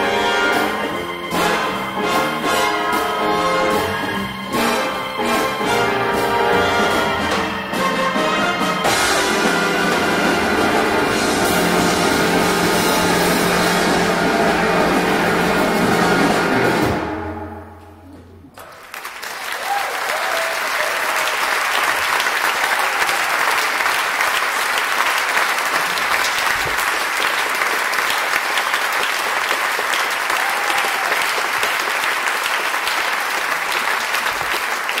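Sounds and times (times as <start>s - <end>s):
audience applauding: 18.5s - 35.0s.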